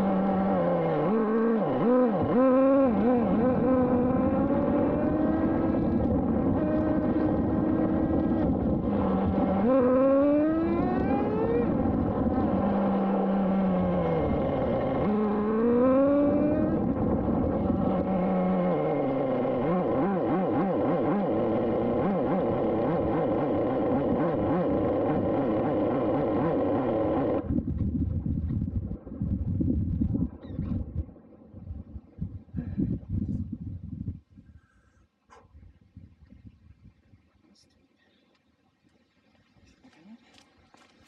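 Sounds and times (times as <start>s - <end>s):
nitro engine revving: 0.0s - 31.2s.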